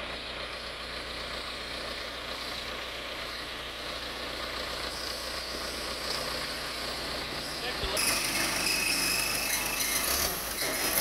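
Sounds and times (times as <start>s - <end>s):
backhoe engine running: 0.0s - 11.0s.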